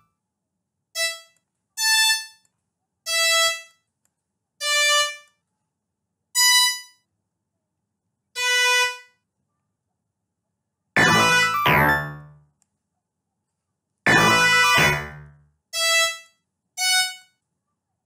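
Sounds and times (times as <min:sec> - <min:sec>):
synthesized violin notes: 0:00.9 - 0:03.8, 0:04.6 - 0:05.4, 0:08.4 - 0:09.2, 0:11.0 - 0:12.4, 0:14.1 - 0:17.3.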